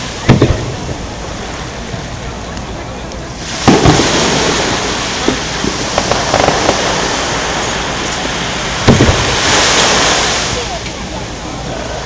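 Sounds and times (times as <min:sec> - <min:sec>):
firework shell booming: 0:00.2 - 0:01.0, 0:03.4 - 0:10.0
crackling hiss with small pops: 0:00.3 - 0:11.0.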